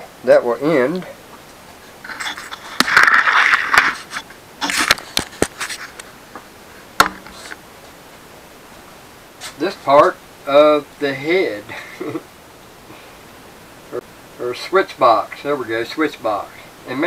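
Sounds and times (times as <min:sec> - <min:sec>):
camera handling rubbing: 0:02.1 - 0:06.1.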